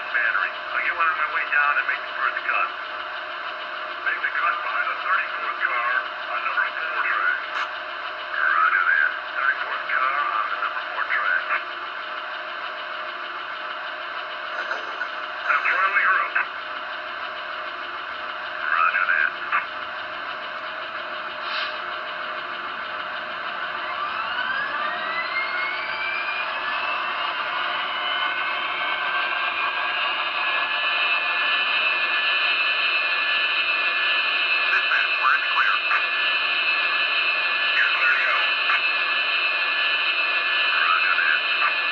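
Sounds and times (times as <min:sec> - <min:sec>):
turbine idling: 0:00.0 - 0:41.9
crackly two-way radio voice: 0:00.1 - 0:02.7, 0:04.1 - 0:07.7, 0:08.4 - 0:11.7, 0:14.6 - 0:16.5, 0:18.6 - 0:19.7, 0:34.6 - 0:36.2, 0:37.7 - 0:39.0, 0:40.4 - 0:41.9.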